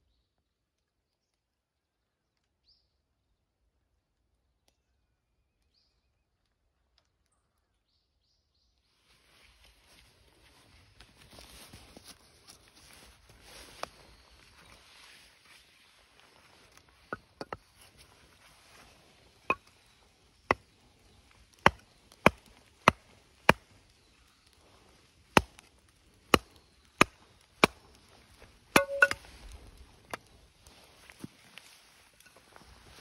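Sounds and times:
hatchet chopping wood: 21.6 - 23.7, 25.3 - 25.7, 26.3 - 28.0, 28.7 - 29.2.

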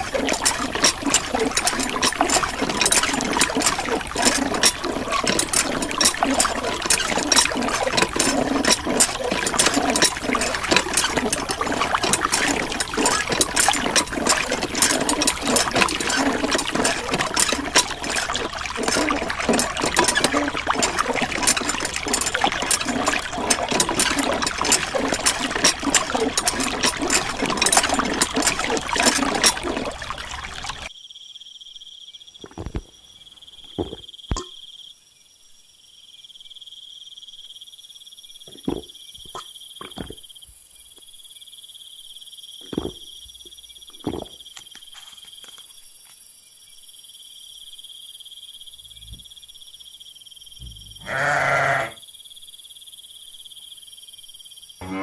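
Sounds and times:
water splashing into plastic tray: 0.0 - 30.9, 38.5 - 40.3, 42.6 - 45.7
crickets chirping: 0.0 - 55.0.

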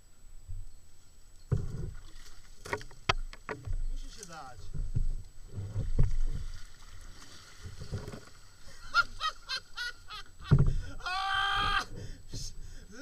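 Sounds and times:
paddle knocking on kayak hull: 10.4 - 10.9.

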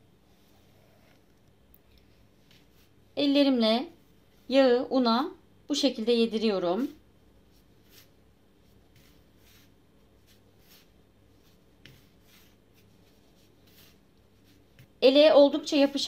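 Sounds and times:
hands rubbing flour in bowl: 6.8 - 16.0.

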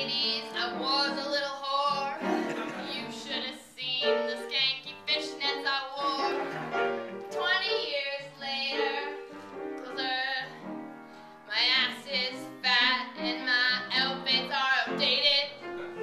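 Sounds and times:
woman singing: 0.0 - 6.4, 7.3 - 9.2, 9.8 - 10.7, 11.5 - 15.6
instrumental accompaniment: 0.0 - 16.0.

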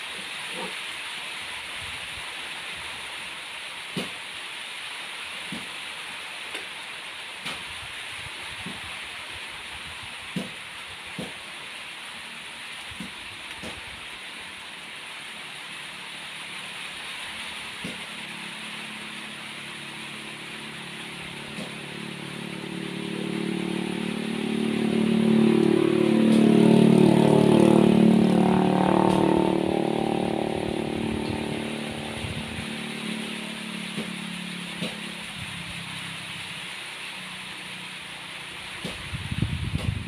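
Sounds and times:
rain hiss: 0.0 - 40.0
vehicle engine passing by: 17.9 - 37.6.

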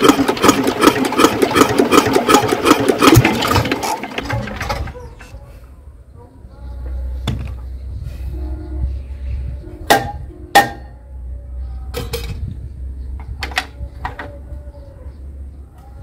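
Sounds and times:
metal clanks and knocks: 11.9 - 12.5, 13.2 - 14.4.

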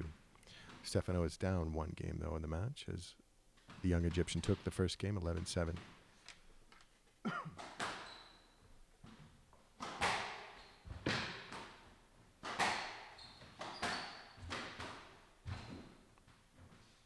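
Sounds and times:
squash ball hitting rackets and walls: 3.6 - 6.2, 7.5 - 16.9.

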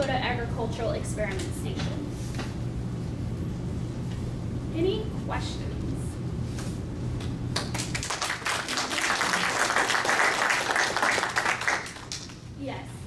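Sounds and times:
audience applauding: 7.6 - 12.4.

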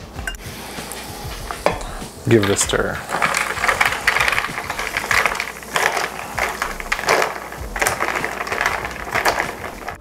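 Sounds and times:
spoon stirring ice in glass: 2.4 - 10.0.

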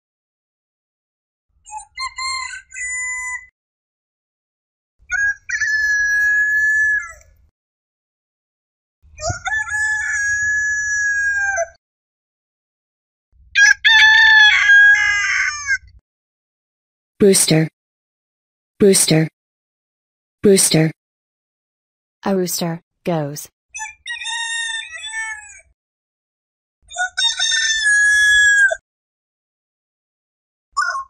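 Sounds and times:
roosters crowing: 13.6 - 15.8.

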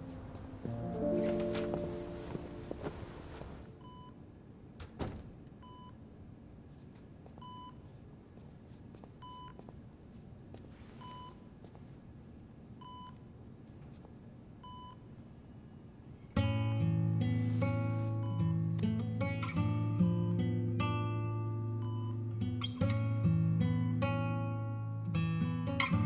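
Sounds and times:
guitar music: 0.0 - 3.6, 16.4 - 26.0
patient monitor beeping: 0.0 - 4.2, 17.8 - 18.7.

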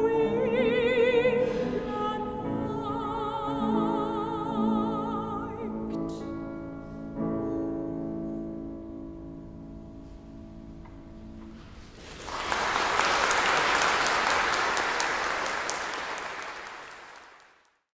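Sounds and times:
audience applause: 11.9 - 17.8.

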